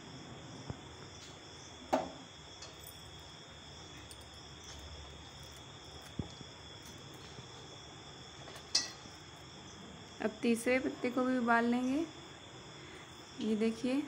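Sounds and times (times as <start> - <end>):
crickets trilling: 0.0 - 14.0.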